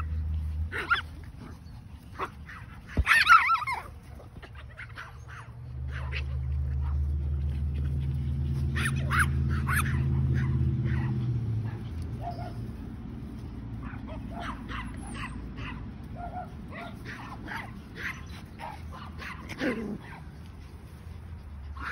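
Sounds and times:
puppies yipping and whimpering: 0.0 - 13.0, 13.8 - 21.9
puppy crying: 3.0 - 6.2.

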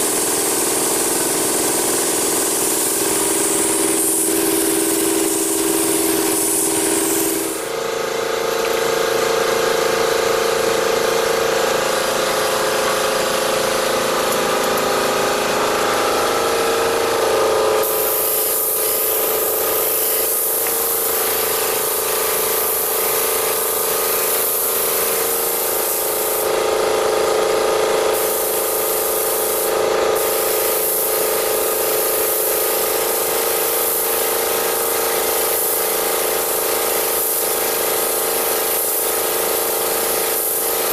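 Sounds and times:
air spray gun hissing: 0.0 - 27.1, 28.1 - 40.9
steady mechanical hum: 0.0 - 40.9.

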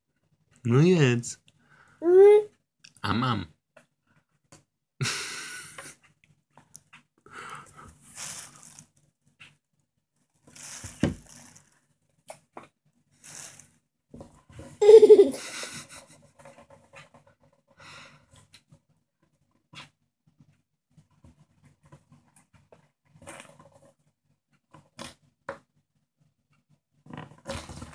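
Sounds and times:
toddler huffs and mouth noises: 2.0 - 2.5
toddler short vocal sound: 2.0 - 2.5.

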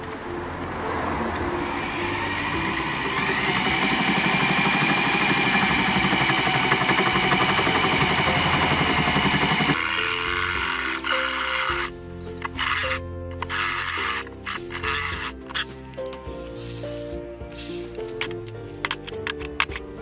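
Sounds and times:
electric drill grinding through metal: 1.6 - 15.7.

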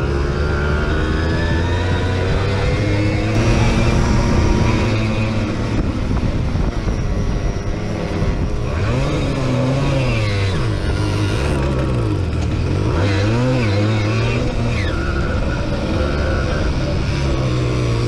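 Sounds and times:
moped engine running hard: 0.0 - 18.0
wind rush: 3.3 - 9.5.

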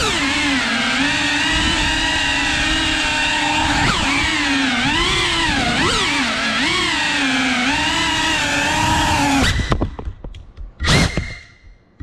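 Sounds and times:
drone motors whining: 0.0 - 10.0, 10.8 - 11.8
drone clattering as it tumbles: 1.5 - 7.8.

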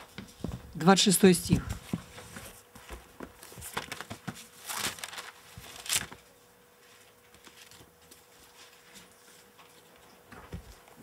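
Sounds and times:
book pages rustling: 1.8 - 9.5.

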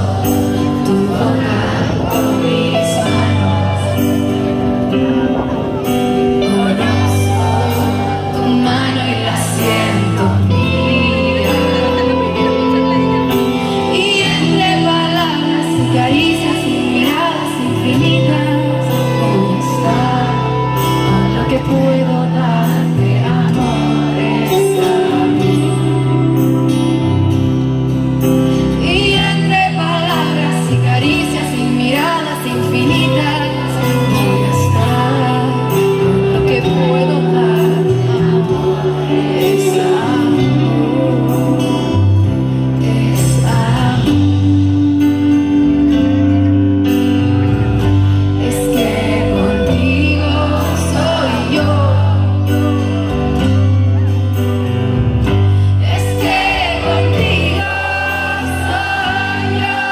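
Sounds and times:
live pop band music: 0.0 - 59.9
sung lead vocal: 0.0 - 59.9.

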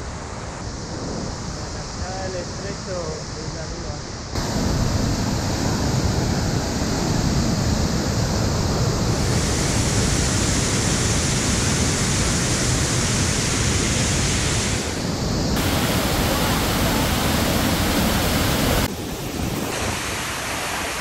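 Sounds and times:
waterfall rushing: 4.4 - 21.0.

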